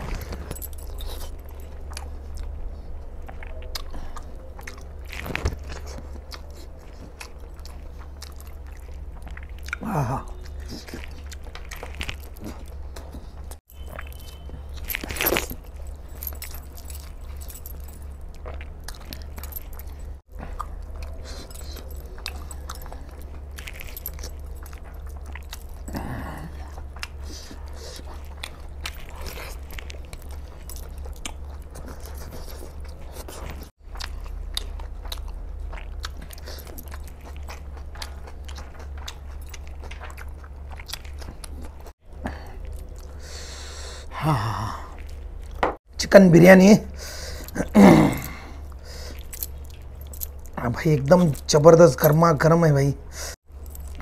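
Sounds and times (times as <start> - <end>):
man chewing food: 0.0 - 52.0, 53.0 - 54.0
steady low hum: 0.0 - 54.0.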